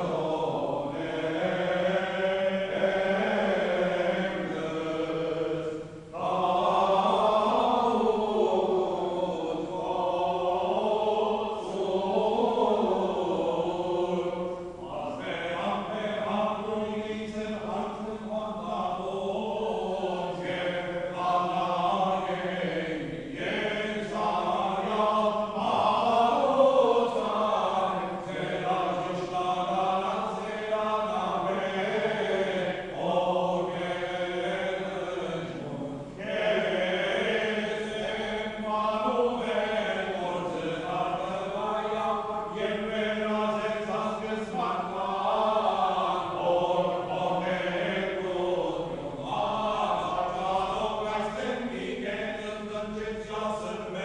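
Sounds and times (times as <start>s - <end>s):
voices chanting: 0.0s - 54.0s.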